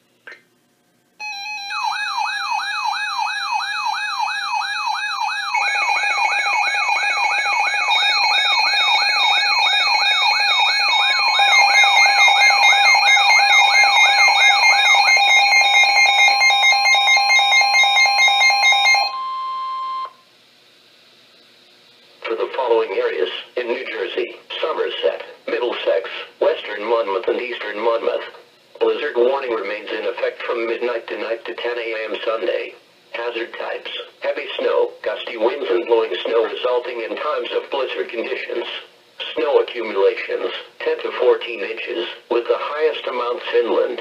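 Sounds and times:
faint hum: 0.0s - 44.0s
steady and pulsing beeps: 1.2s - 20.2s
steady warning tone: 1.2s - 20.2s
warbling siren: 1.2s - 20.2s.

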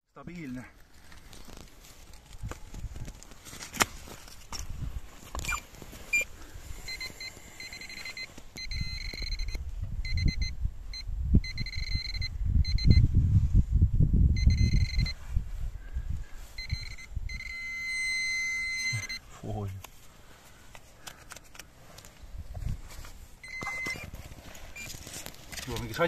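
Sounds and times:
metal detector high beeping: 5.4s - 13.1s, 14.4s - 15.2s, 16.4s - 19.3s, 23.4s - 25.0s.

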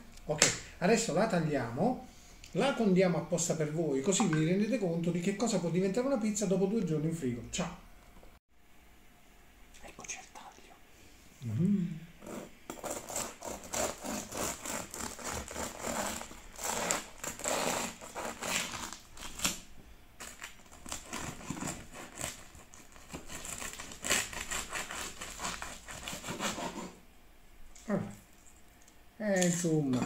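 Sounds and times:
bread knife sawing crisp crust: 12.2s - 19.4s, 20.8s - 27.0s.

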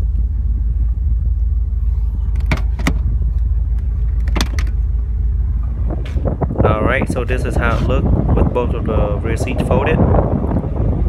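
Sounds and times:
steady low rumble: 0.0s - 11.0s
car seat levers clicking: 2.3s - 3.0s, 4.2s - 4.8s.

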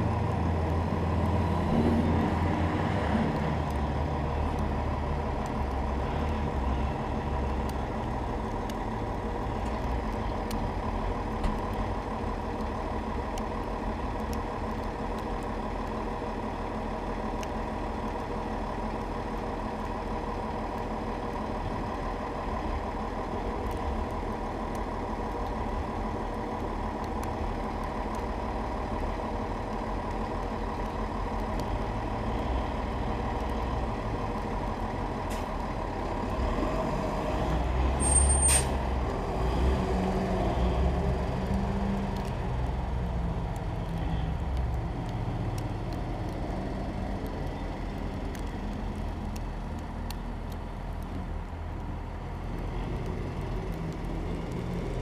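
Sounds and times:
diesel truck engine: 0.0s - 55.0s
air brakes hissing: 38.0s - 38.8s.

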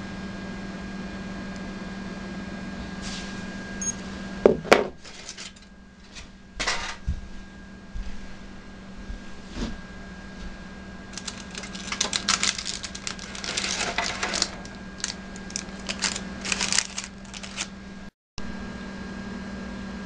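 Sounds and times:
steady low hum: 0.0s - 20.0s
foil and paper crinkling: 5.0s - 5.6s, 11.1s - 17.8s.

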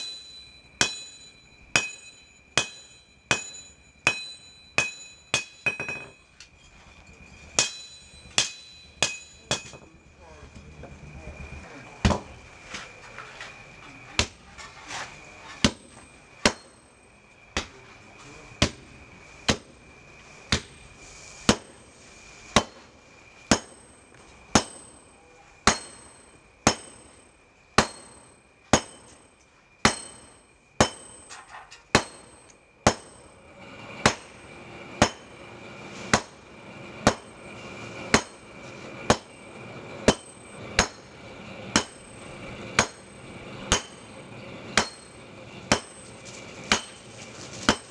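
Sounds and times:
hammer striking iron on anvil: 0.0s - 6.3s, 7.6s - 9.9s, 15.6s - 16.8s, 21.5s - 21.8s, 22.6s - 22.9s, 23.5s - 27.2s, 27.8s - 33.3s, 34.0s - 34.3s, 35.0s - 35.3s, 36.1s - 36.4s, 37.0s - 37.4s, 38.1s - 38.4s, 39.1s - 39.3s, 40.0s - 41.1s, 41.7s - 42.2s, 42.8s - 43.1s, 43.7s - 44.1s, 44.8s - 46.0s, 46.7s - 47.0s, 47.7s - 47.9s.

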